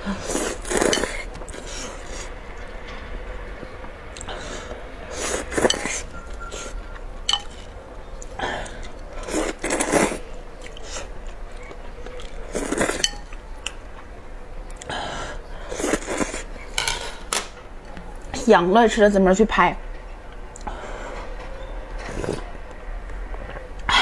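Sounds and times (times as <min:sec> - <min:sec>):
slurping noodles: 0:00.0 - 0:02.3, 0:04.2 - 0:06.8, 0:08.6 - 0:11.1, 0:12.2 - 0:13.1, 0:15.7 - 0:16.5, 0:22.0 - 0:22.5
chopsticks clicking against bowl: 0:07.3 - 0:09.0.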